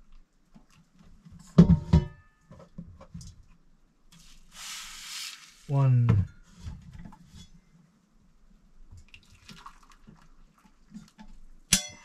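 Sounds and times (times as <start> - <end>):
water pouring from kettle: 9.0 - 11.4
sharp metallic clank: 11.7 - 12.0.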